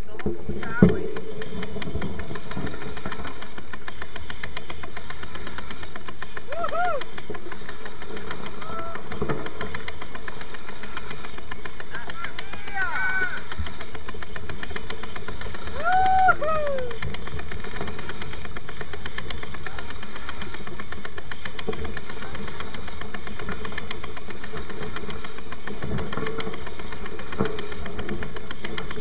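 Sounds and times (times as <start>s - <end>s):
bike rattle and tyre noise: 0.0s - 29.0s
rider shouting: 15.8s - 17.0s.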